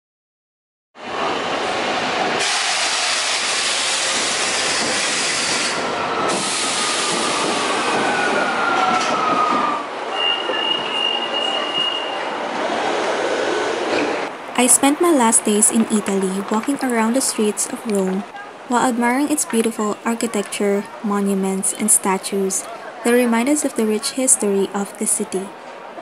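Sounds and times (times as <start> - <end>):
falling whines of slowing train: 1.0 - 14.4
metro train rail noise: 1.0 - 26.0.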